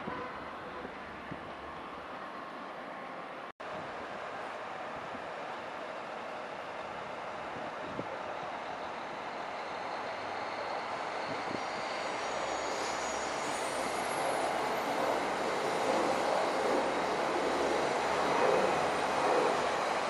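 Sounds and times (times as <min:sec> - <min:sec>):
diesel train running noise: 0:00.0 - 0:20.0
faint high squeal: 0:08.4 - 0:17.1.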